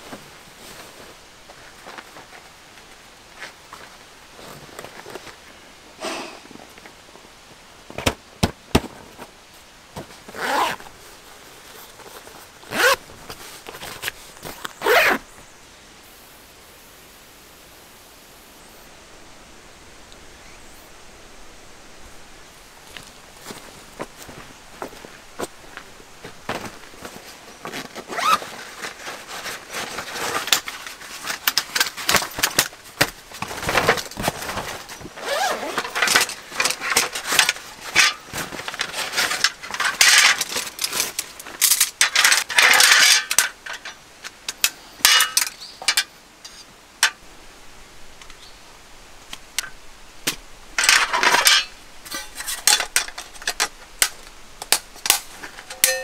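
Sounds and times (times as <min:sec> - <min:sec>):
fabric pouch handled: 0:11.7 - 0:15.2, 0:26.5 - 0:31.3
metal camp table clicks and clinks: 0:28.2 - 0:47.2, 0:50.8 - 0:56.0.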